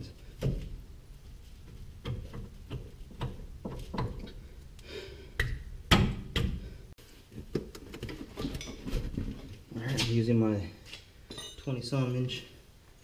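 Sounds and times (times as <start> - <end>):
metal clinks and knocks: 11.3 - 11.8.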